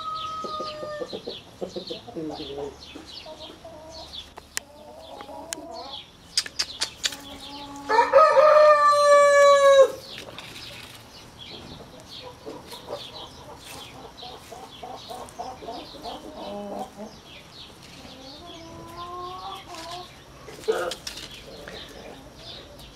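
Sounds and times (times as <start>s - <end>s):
rooster crowing: 0.0s - 1.1s, 7.8s - 10.0s
sharp clicks: 6.3s - 7.2s.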